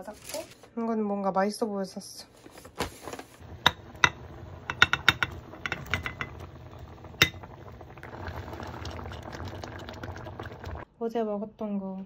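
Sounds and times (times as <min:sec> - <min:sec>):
sauce bubbling: 0:03.4 - 0:10.9.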